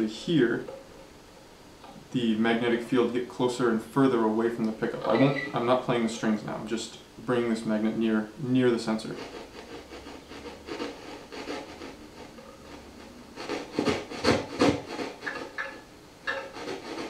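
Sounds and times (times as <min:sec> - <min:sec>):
scratchy rubbing noise from guitar amp: 0:08.6 - 0:17.0.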